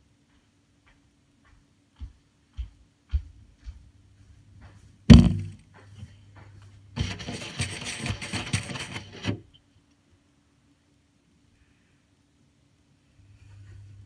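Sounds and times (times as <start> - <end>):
hard knock on phone: 5.1 - 5.6
rustling against microphone: 7.0 - 9.6.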